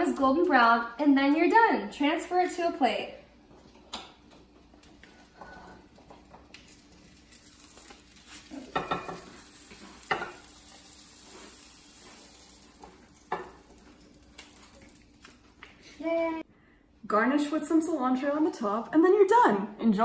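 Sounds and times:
oil sizzling in a frying pan: 4.4 - 16.4.

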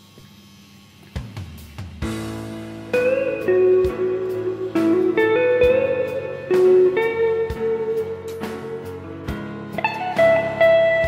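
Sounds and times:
steady drum beat: 1.1 - 6.9, 7.5 - 10.4
guitar with sliding notes: 2.0 - 11.0.

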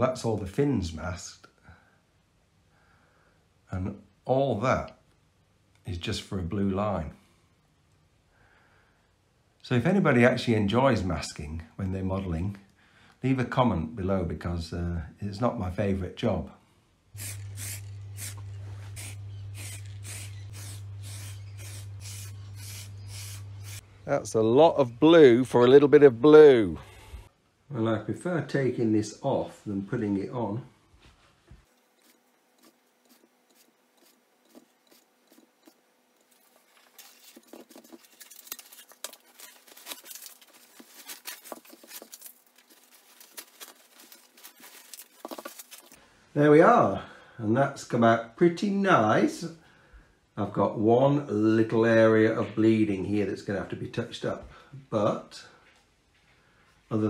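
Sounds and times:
spray can hissing bursts: 17.2 - 23.8
tape and paper peeling: 32.0 - 46.0.

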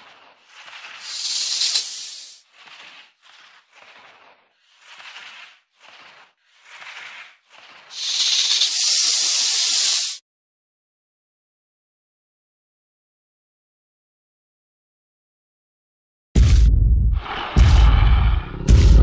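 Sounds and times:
snake hissing: 0.0 - 10.2.

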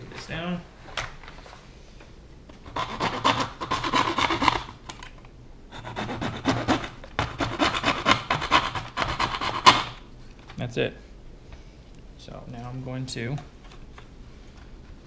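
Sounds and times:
hand tool scraping: 2.7 - 4.7.

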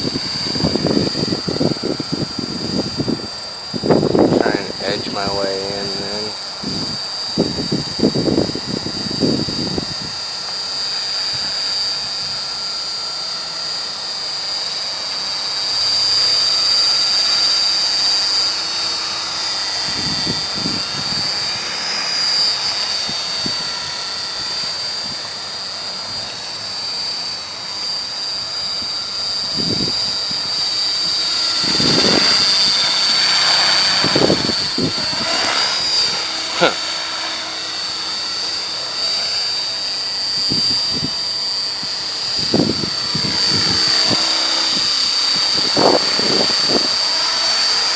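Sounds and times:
wind buffeting microphone: 0.0 - 10.2, 19.6 - 21.6, 28.8 - 36.8, 40.2 - 47.4
model helicopter whine: 0.0 - 47.9.

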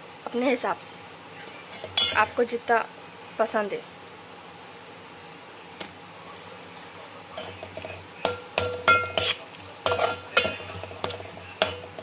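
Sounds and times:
faint sizzle: 0.0 - 12.0
metal spoon stirring in pot: 7.3 - 12.0
spoon clinking against metal pot: 7.4 - 12.0.

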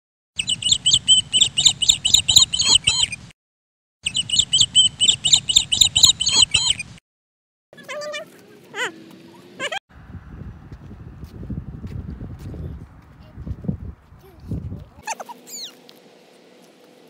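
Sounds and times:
rapid bird chirping: 0.4 - 3.3, 4.0 - 7.0, 15.0 - 15.8.

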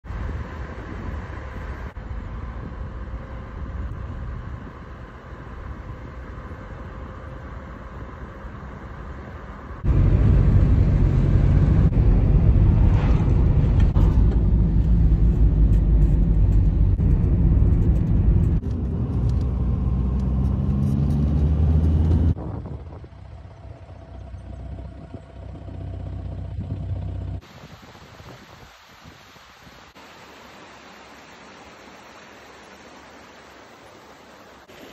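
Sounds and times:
road noise: 0.0 - 28.2
van engine: 0.4 - 27.4.

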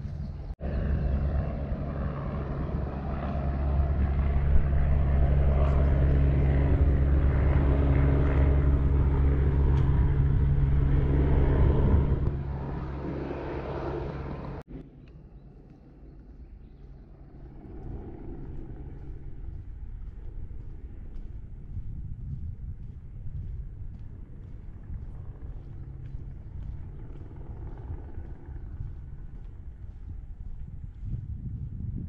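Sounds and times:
engine droning: 0.0 - 31.8.

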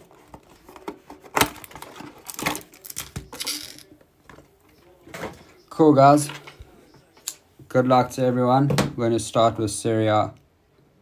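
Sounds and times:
wrapper crinkling and tearing: 1.4 - 3.8.

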